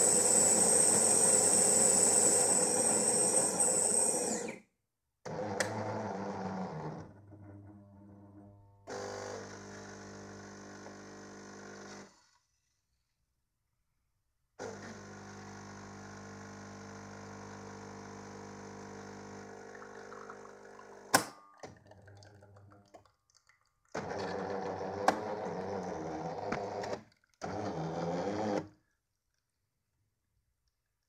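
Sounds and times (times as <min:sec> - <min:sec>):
espresso machine pump running: 0:00.0 - 0:04.6, 0:08.9 - 0:12.0, 0:14.6 - 0:21.1, 0:24.0 - 0:28.6.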